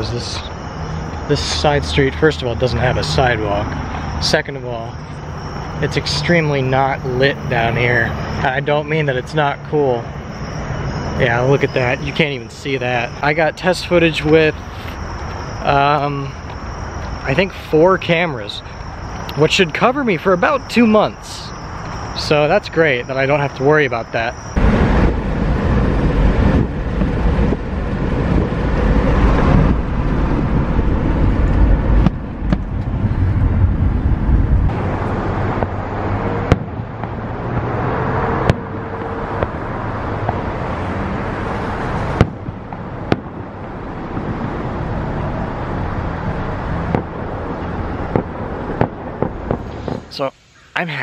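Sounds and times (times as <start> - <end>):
cars passing: 0.0 - 51.0
fireworks bangs: 36.4 - 37.7, 41.9 - 44.6, 46.8 - 50.2.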